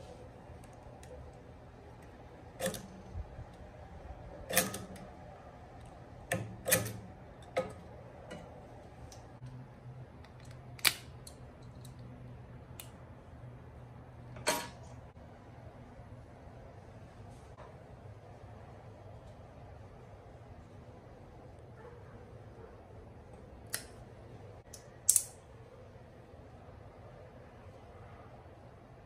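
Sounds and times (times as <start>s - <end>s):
metallic clicks of hand tools: 2.6s - 3.2s, 4.5s - 5.1s, 24.7s - 25.4s.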